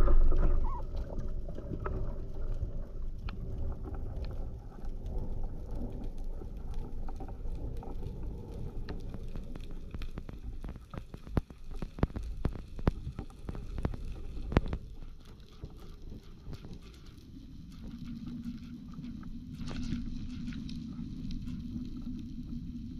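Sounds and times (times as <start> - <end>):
underwater water rush: 0.0 - 22.9
sharp underwater clicks: 6.6 - 20.6.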